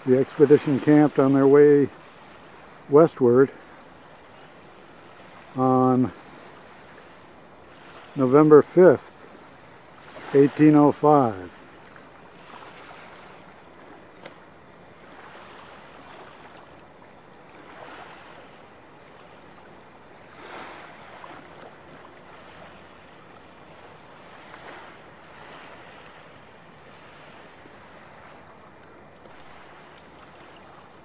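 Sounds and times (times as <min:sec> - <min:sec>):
waves lapping on sandy shore: 0:00.0 - 0:31.0
faint click: 0:14.2 - 0:14.4.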